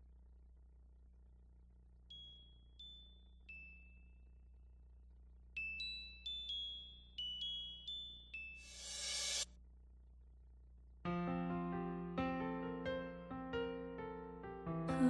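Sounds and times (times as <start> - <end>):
high bell-like chime notes: 5.6 - 9.4.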